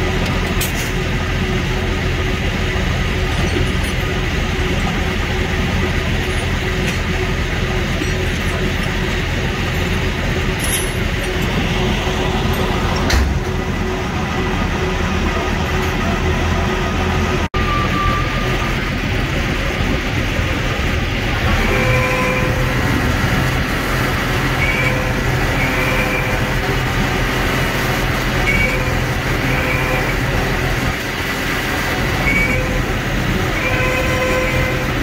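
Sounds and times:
truck diesel engine running: 0.0 - 35.0.

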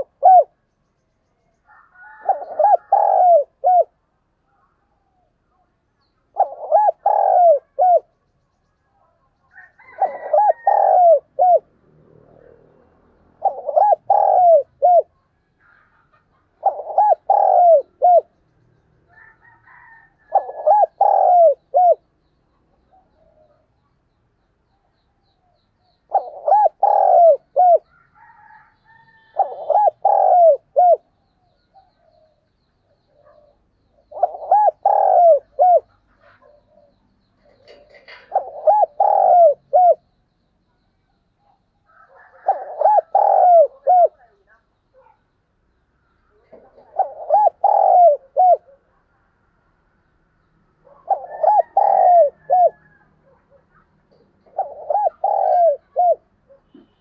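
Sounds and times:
dove cooing: 0.0 - 0.6, 1.7 - 4.0, 6.3 - 8.2, 9.5 - 18.4, 19.1 - 22.1, 26.0 - 32.4, 33.0 - 40.1, 41.4 - 45.2, 46.4 - 49.0, 50.8 - 57.0.

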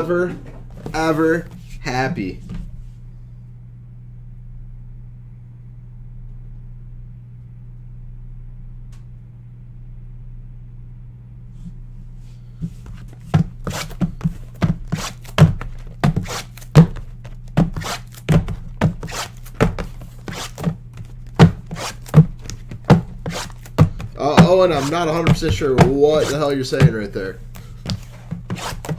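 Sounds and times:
steady low hum: 0.0 - 28.9
boxes thunking on a desk: 13.3 - 20.0, 20.6 - 27.2.

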